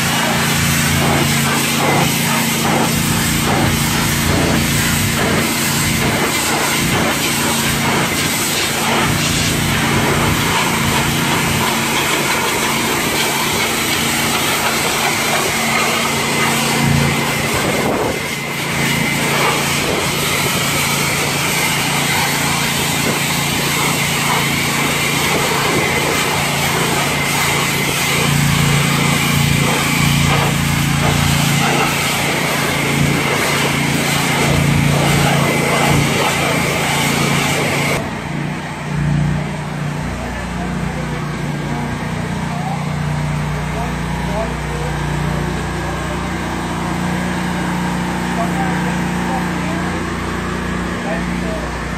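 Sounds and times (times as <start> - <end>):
pressure washer spray hissing: 0.0 - 38.1.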